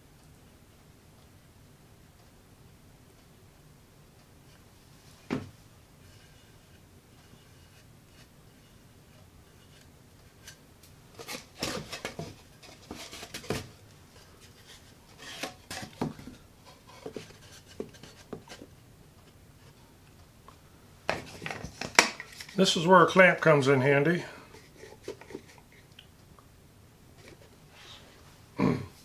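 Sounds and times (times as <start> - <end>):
light wooden knocks and rubbing: 11.2 - 18.7.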